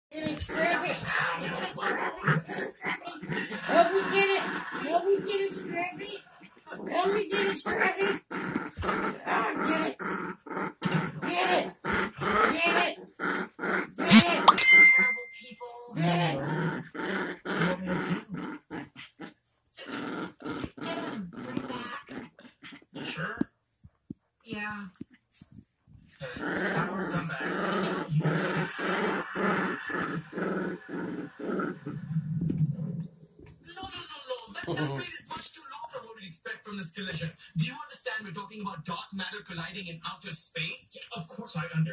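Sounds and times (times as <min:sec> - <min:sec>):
dogs growling: 0:00.2 - 0:23.5, 0:26.1 - 0:33.6, 0:34.7 - 0:35.0.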